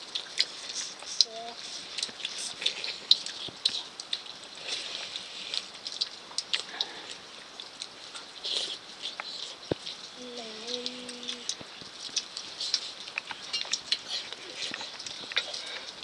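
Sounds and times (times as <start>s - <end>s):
mouths chewing wetly: 0.0s - 16.0s.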